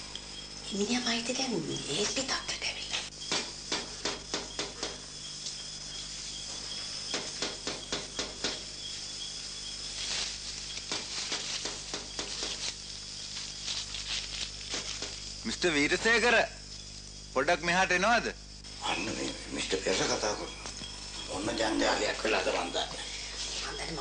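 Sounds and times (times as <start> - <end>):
crickets chirring: 0.0 - 24.0.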